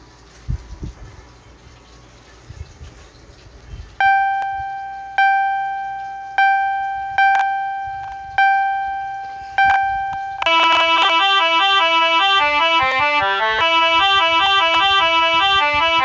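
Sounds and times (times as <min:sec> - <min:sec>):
high keyboard note ringing: 0:04.0 - 0:16.0.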